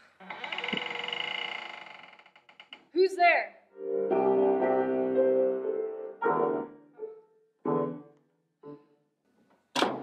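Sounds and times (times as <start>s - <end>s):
grand piano chords: 3.8s - 8.8s.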